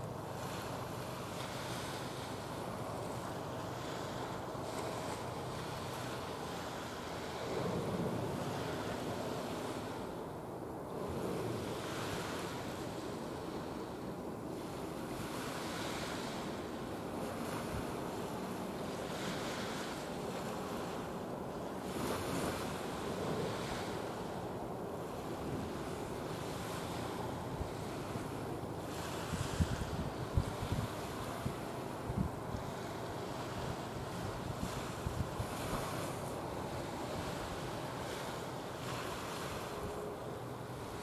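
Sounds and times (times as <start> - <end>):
waves washing: 0.0 - 41.0
wind on the microphone: 0.0 - 41.0.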